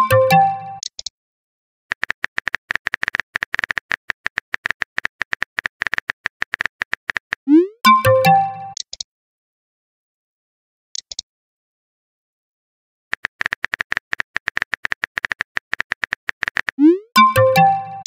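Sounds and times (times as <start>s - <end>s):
message chime: 0.0s - 0.8s, 7.5s - 8.8s, 16.8s - 18.0s
phone keyboard typing clicks: 1.9s - 7.4s, 13.1s - 16.9s.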